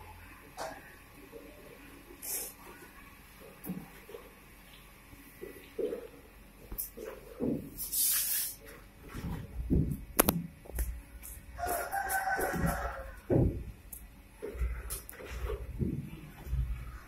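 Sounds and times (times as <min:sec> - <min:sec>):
rooster crowing: 0:11.6 - 0:13.6
knocks: 0:12.5 - 0:13.8.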